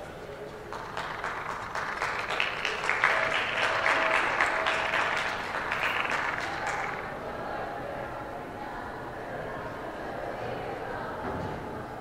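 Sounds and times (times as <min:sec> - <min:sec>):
audience applauding: 0:00.7 - 0:07.2.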